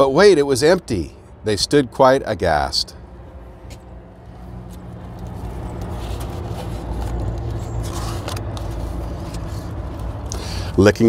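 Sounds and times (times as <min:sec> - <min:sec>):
vehicle engine humming: 0:00.0 - 0:11.0
book page rustling: 0:03.7 - 0:10.3.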